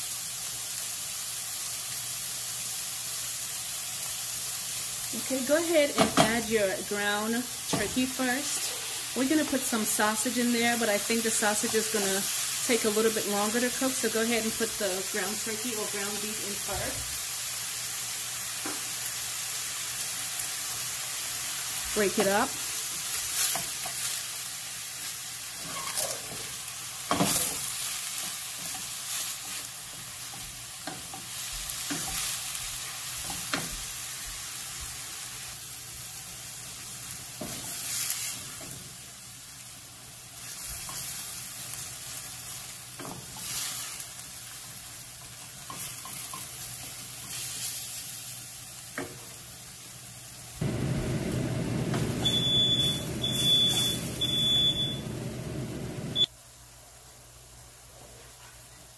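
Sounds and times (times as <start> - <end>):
meat and onions sizzling: 0.0 - 57.6
short electronic beeps: 52.2 - 55.1.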